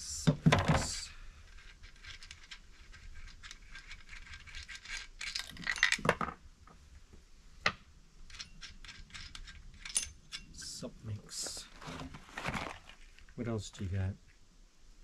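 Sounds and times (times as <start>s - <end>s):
metal chain clinking and rattling: 1.5s - 6.3s, 8.2s - 10.7s.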